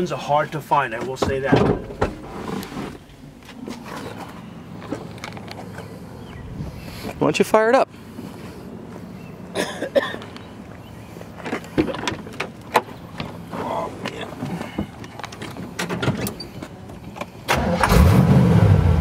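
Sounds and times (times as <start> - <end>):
car engine starting and rumbling: 0.0 - 19.0.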